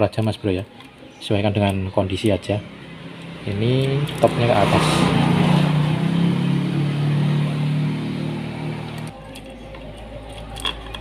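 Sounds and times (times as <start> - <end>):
engine running: 2.4 - 9.2.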